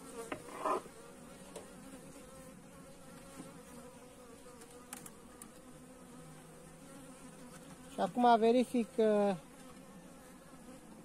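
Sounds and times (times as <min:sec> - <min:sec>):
bees buzzing: 0:00.0 - 0:11.0
hive tool clicking on wood: 0:04.6 - 0:05.6.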